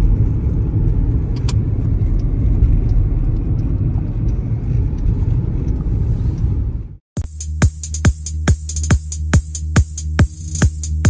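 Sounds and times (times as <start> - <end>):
car cabin road rumble: 0.0 - 7.0.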